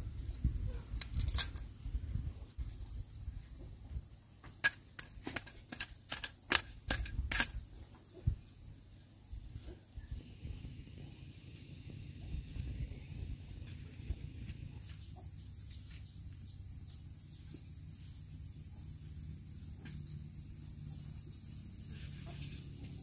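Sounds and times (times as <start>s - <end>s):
high-pitched insect drone: 10.0s - 23.0s.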